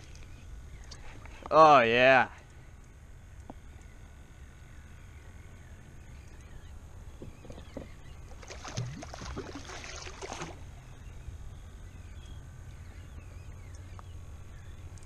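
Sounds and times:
wind and water rumble: 0.0s - 15.0s
fish splashing at surface: 8.4s - 10.7s.

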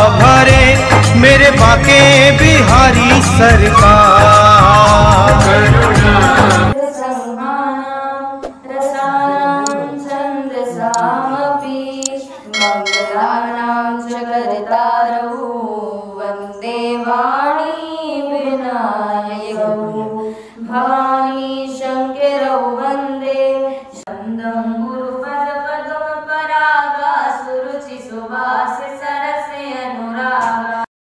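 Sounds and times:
girl singing devotional song: 6.8s - 30.9s.

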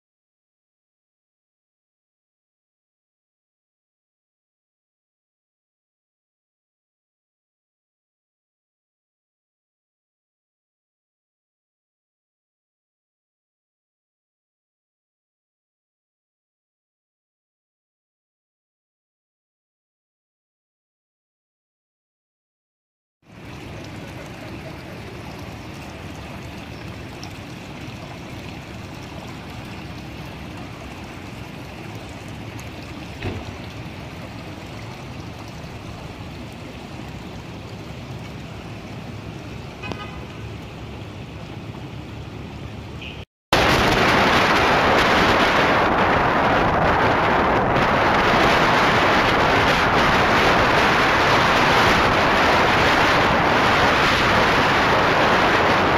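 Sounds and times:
water running across street: 23.2s - 55.9s
horn toot: 39.8s - 40.4s, 43.0s - 43.2s
wind rush on microphone: 43.6s - 55.9s.

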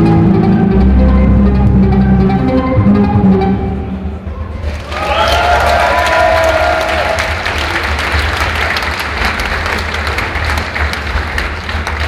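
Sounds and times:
audience clapping: 4.6s - 12.0s.

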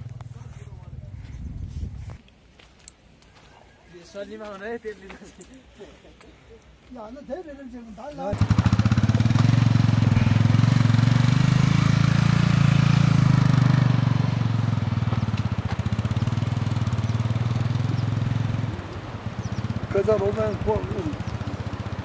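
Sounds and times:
motorcycle engine riding away: 0.0s - 1.2s, 8.3s - 22.0s.

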